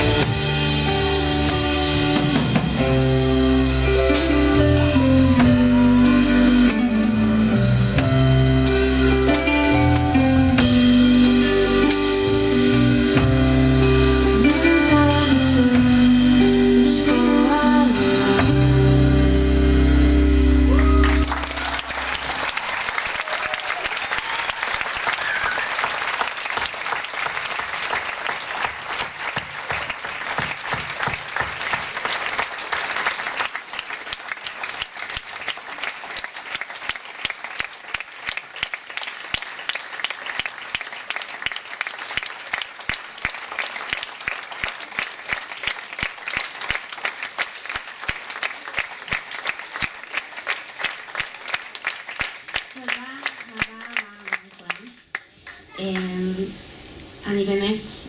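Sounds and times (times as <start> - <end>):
live band song: 0.0 - 22.6
rhythmic clapping in unison: 20.1 - 56.1
audience applause: 20.4 - 56.1.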